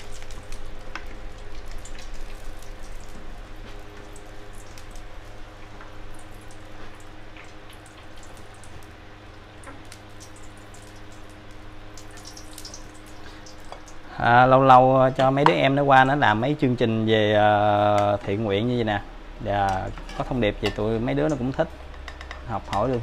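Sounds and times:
hot oil crackling in a pan: 0:00.0 - 0:14.2, 0:19.4 - 0:23.0
steady low hum: 0:00.0 - 0:23.0.

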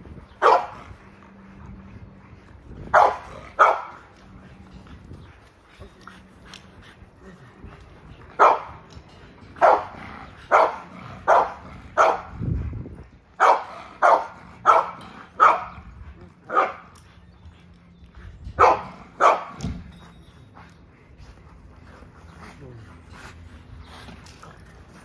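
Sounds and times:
dog barking: 0:00.4 - 0:00.8, 0:02.9 - 0:03.9, 0:08.4 - 0:08.7, 0:09.6 - 0:09.9, 0:10.5 - 0:12.3, 0:13.4 - 0:15.8, 0:16.5 - 0:16.9, 0:18.6 - 0:19.6.

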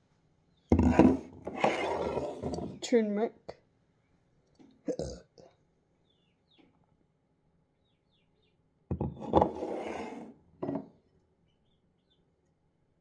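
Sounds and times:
containers knocking on counter: 0:08.9 - 0:09.5.

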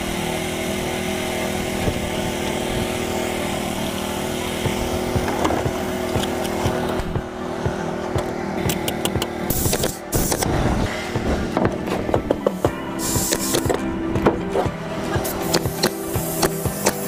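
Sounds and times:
engine running steadily: 0:00.0 - 0:17.0
knocks and rattles: 0:04.6 - 0:10.4.

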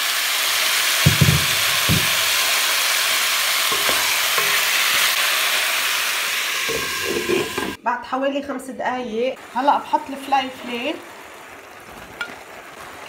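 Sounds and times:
food sizzling in oil: 0:00.0 - 0:07.8, 0:09.1 - 0:13.0
utensil knocking against pan: 0:01.0 - 0:02.3, 0:03.7 - 0:04.7.

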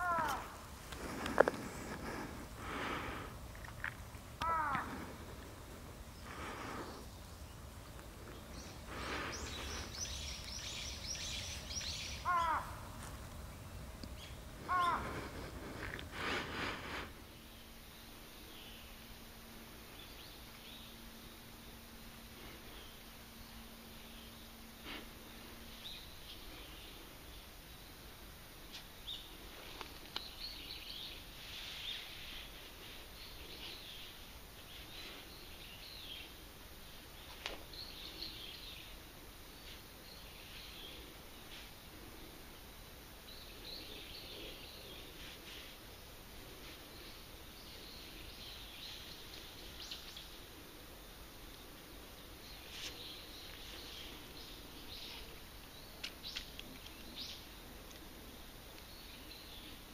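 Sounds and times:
crow cawing: 0:00.0 - 0:00.6, 0:04.4 - 0:05.3, 0:12.0 - 0:13.1, 0:14.6 - 0:15.6
small birds chirping: 0:00.0 - 0:19.1, 0:28.7 - 0:59.9
faint clicks: 0:03.5 - 0:05.5.

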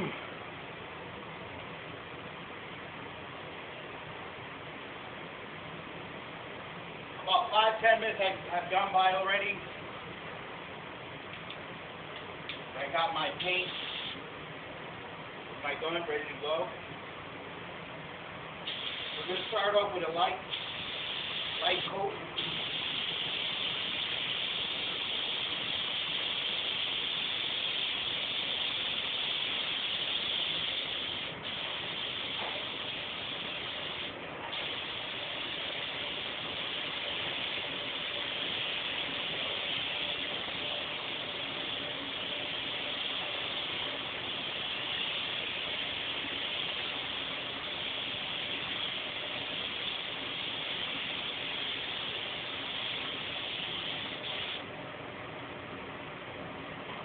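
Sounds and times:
spray gun hissing: 0:13.3 - 0:14.2, 0:18.7 - 0:54.6.

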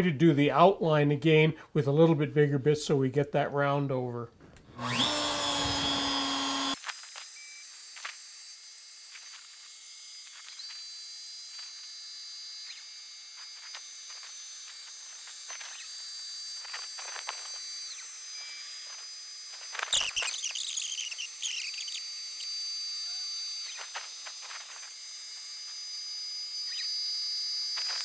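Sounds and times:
router whining and hissing: 0:04.6 - 0:28.0.

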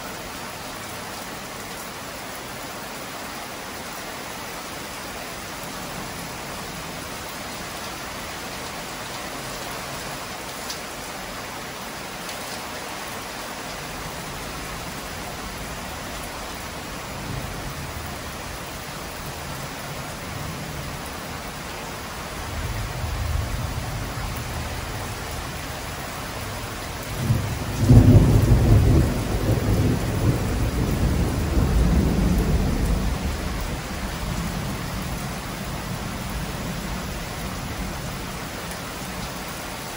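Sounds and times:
heavy rain falling: 0:00.0 - 0:39.9
thunder rumbling: 0:26.5 - 0:37.1.

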